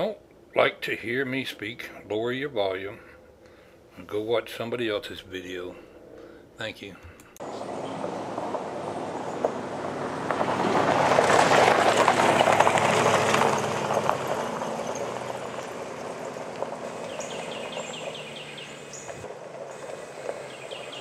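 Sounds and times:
pickup truck driving past: 7.4 - 21.0
tyres crunching gravel: 7.4 - 21.0.

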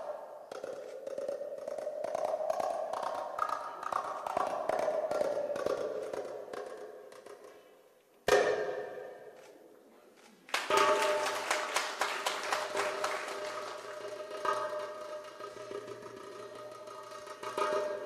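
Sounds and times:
goblet drum strokes: 13.9 - 18.0.

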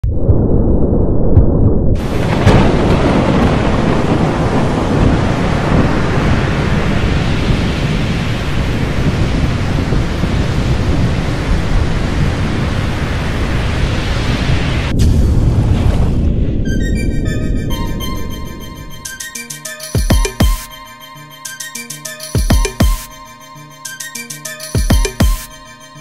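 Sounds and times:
rumbling thunder: 0.2 - 16.7
heavy rain hissing: 2.0 - 14.9.

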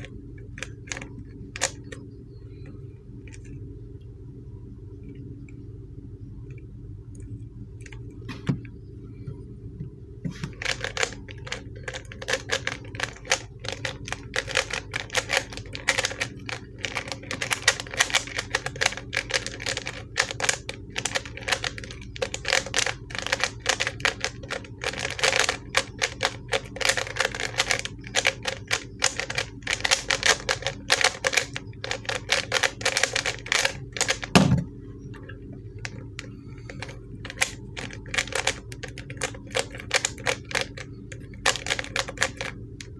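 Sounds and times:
puzzle cube plastic clicks: 0.0 - 2.0, 10.5 - 34.4, 35.8 - 42.9
cube thump: 34.4 - 34.7.

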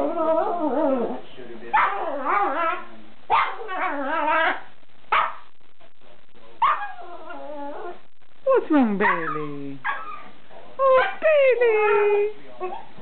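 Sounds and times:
small dog yipping and barking: 6.6 - 7.0, 9.0 - 10.3.

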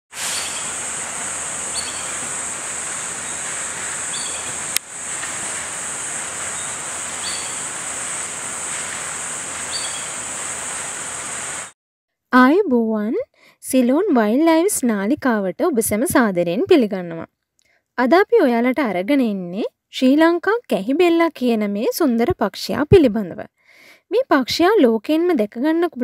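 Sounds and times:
bird notes: 0.2 - 4.8, 5.4 - 10.7
insect drone: 0.2 - 11.7.

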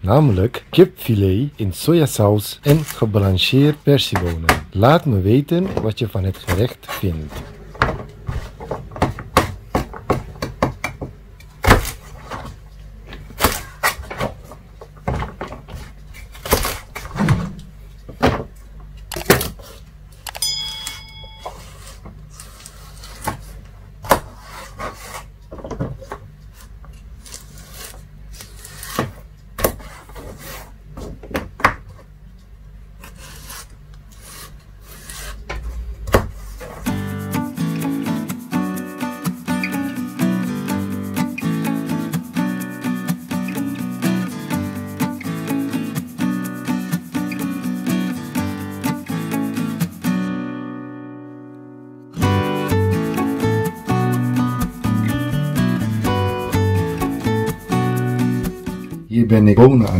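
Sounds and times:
brief high tone: 20.4 - 21.7.

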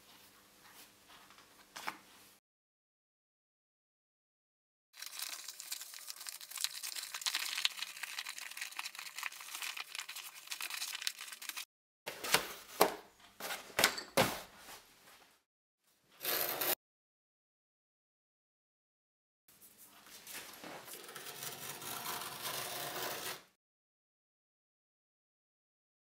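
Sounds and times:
knife scraping along steel rule: 20.9 - 23.5.

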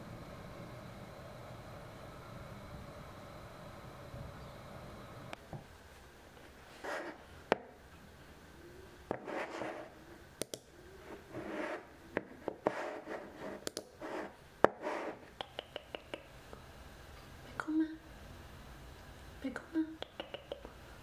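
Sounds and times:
keyboard and mouse clicks: 15.4 - 16.3, 20.0 - 20.7.

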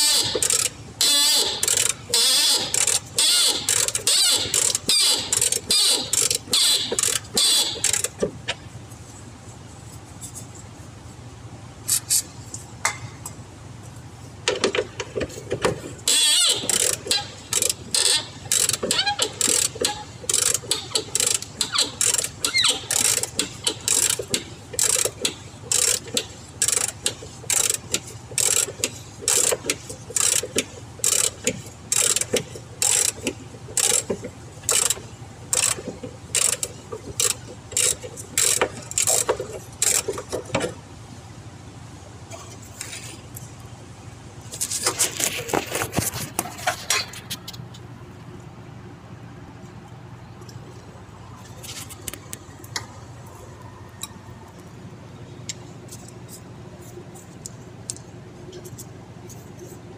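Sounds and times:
ratchet wrench clicking: 0.0 - 8.2, 16.1 - 40.4.

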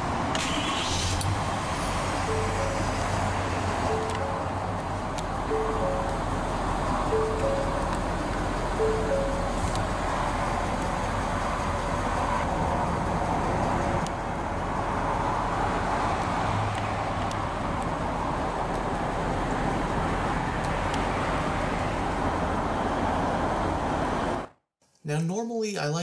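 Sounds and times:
diesel truck engine idling: 0.8 - 16.4.

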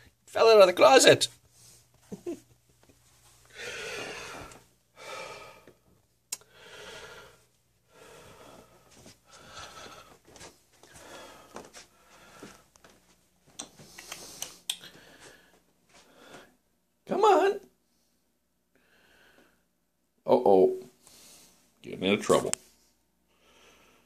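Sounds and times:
person breathing: 3.5 - 12.8, 13.8 - 16.6, 17.8 - 19.7, 21.0 - 21.7, 22.7 - 24.0
faint clicks: 13.5 - 14.9.

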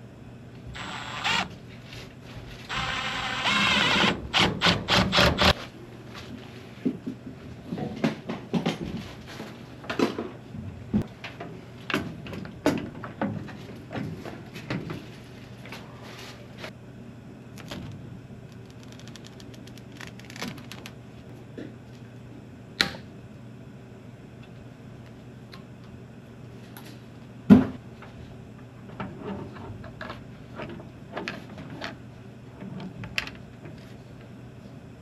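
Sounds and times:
steady low hum: 0.0 - 7.8
small ticks and clicks: 18.5 - 20.9.

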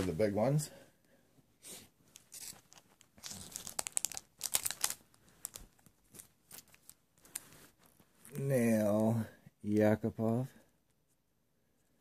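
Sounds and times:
plastic packaging crinkling: 2.1 - 8.0.

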